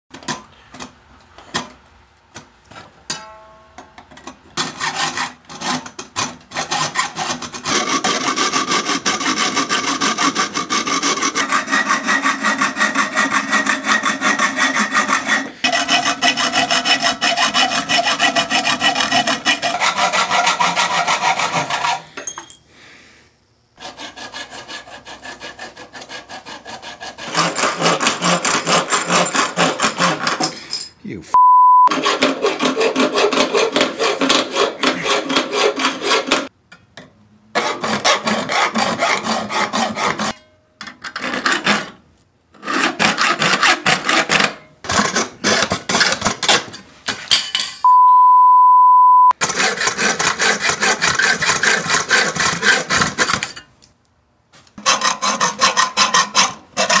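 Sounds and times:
hacksaw cutting sheet steel: 0:04.6 - 0:22.2, 0:23.8 - 0:30.6, 0:31.9 - 0:36.5, 0:37.6 - 0:42.0, 0:42.6 - 0:46.8, 0:49.4 - 0:53.7, 0:54.8 - 0:57.0.

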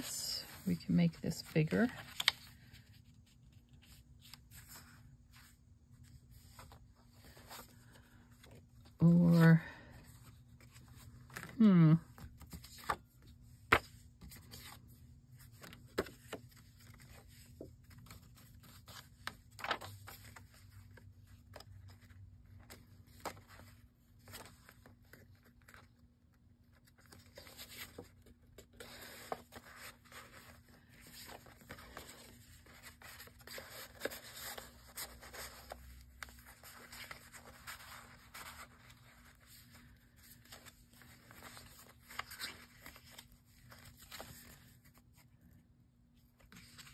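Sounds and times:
paper rustling and scraping: 0:00.0 - 0:11.6, 0:26.8 - 0:45.4.

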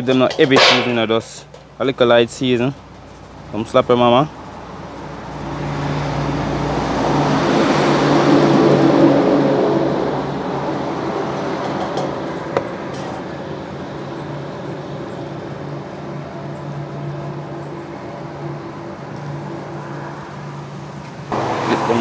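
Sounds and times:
sharp knock: 0:00.3 - 0:01.1
motor vehicle passing: 0:04.4 - 0:22.0.

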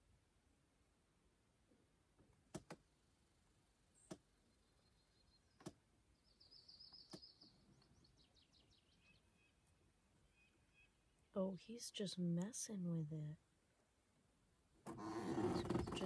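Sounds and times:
faint sharp clicks: 0:05.6 - 0:05.8, 0:06.9 - 0:07.3.

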